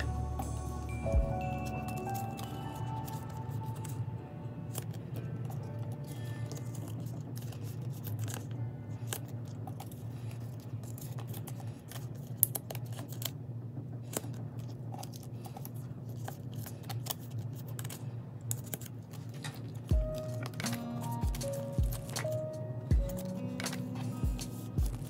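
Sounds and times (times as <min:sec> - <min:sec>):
plastic sleeves and cards handled: 0:00.0 - 0:04.0, 0:04.7 - 0:13.4, 0:14.0 - 0:25.0.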